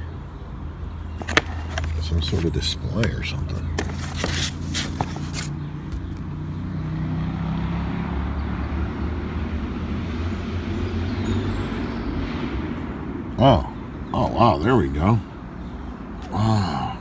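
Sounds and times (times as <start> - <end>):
motor vehicle passing: 1.0 - 14.3.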